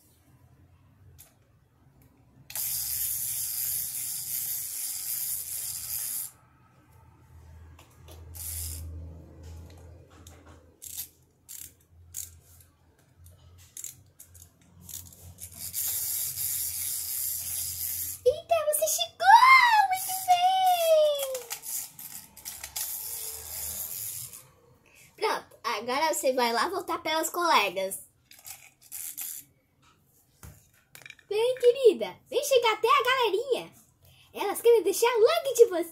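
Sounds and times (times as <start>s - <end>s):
plastic toys scraping on tile: 21.3s - 24.5s.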